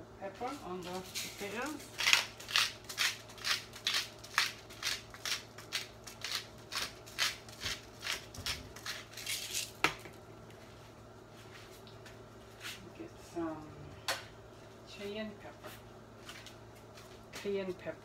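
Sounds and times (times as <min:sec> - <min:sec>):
pepper mill grinding: 0:00.8 - 0:09.8.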